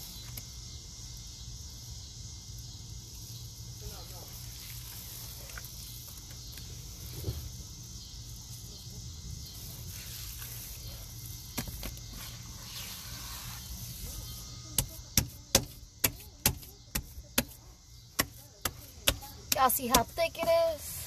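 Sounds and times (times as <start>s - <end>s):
steady high hiss: 0.0s - 14.8s.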